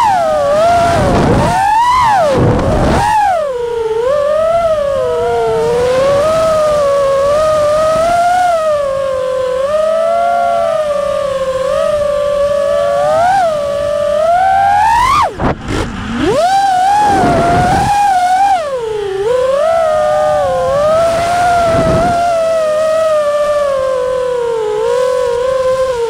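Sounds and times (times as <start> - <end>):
quadcopter motors whining: 0.0 - 26.0.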